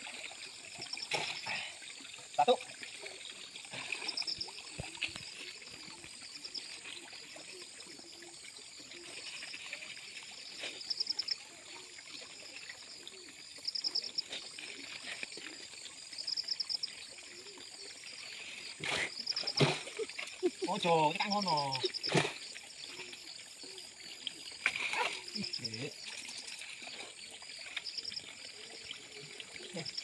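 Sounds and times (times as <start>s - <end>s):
water sloshing from wading: 0.0s - 16.8s
insect trill: 0.0s - 30.0s
water splash: 2.4s - 7.3s, 18.4s - 23.2s.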